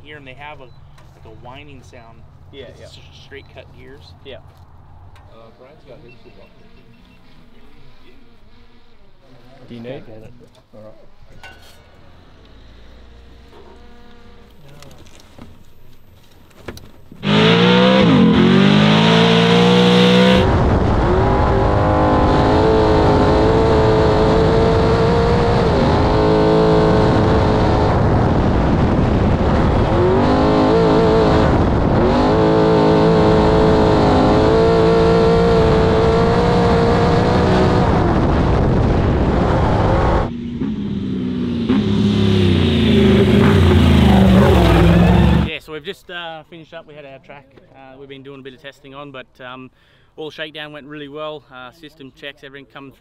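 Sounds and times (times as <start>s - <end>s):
truck engine revving: 17.2s - 45.5s.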